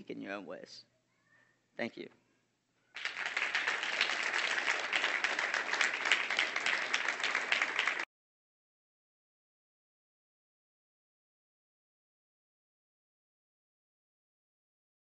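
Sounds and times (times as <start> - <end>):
audience applauding: 2.9 - 8.1.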